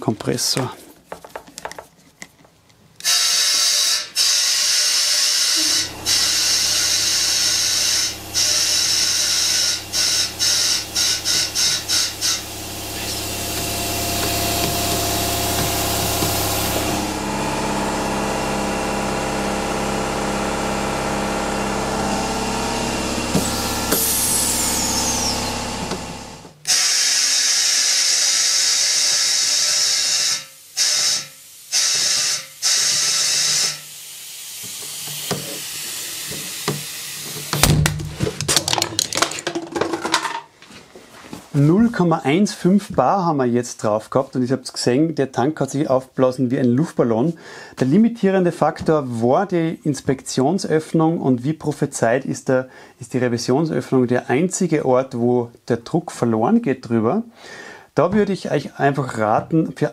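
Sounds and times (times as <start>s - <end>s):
compressed air hissing: 3.0s - 17.3s, 23.2s - 26.2s, 29.3s - 37.6s
air compressor motor humming: 3.0s - 38.4s.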